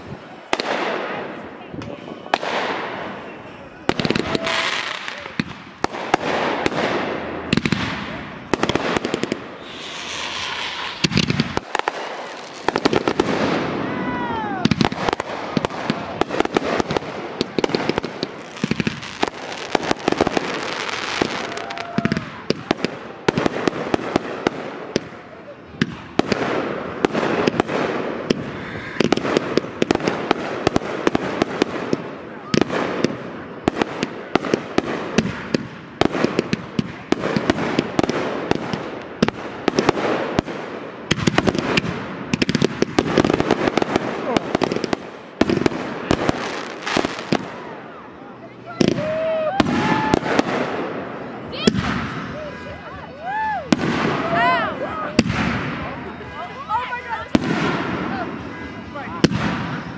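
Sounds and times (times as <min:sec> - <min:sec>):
firework bangs: 0:00.0 - 0:48.0, 0:48.7 - 0:59.9
fireworks crackling: 0:00.0 - 0:59.9
falling firework whistles: 0:09.5 - 0:13.1.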